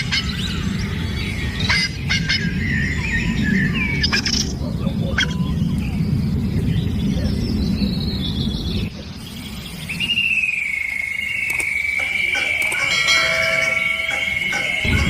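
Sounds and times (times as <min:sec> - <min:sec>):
low rumbling noise: 0:00.0 - 0:15.0
high pulsed insect trill: 0:09.3 - 0:15.0
sharp clicks: 0:11.3 - 0:13.1
short chime: 0:12.4 - 0:15.0.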